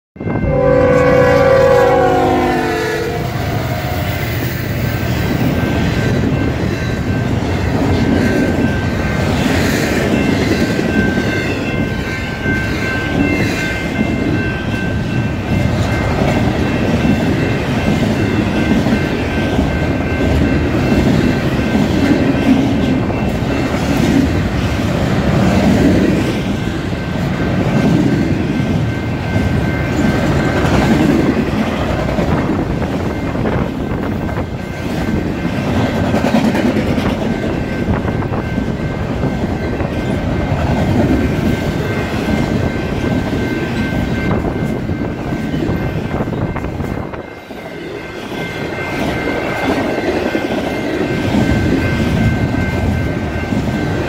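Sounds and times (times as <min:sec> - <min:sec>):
thin high ringing tone: 0:00.2 - 0:07.8
locomotive air horn: 0:00.4 - 0:04.5.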